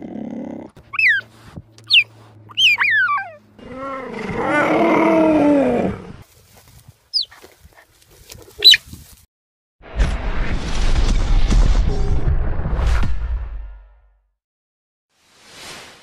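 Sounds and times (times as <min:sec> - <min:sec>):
cheetah chirps: 0:00.9 - 0:01.3, 0:01.9 - 0:03.4, 0:07.1 - 0:07.4, 0:08.6 - 0:08.8
low wavering cheetah call: 0:01.9 - 0:04.0.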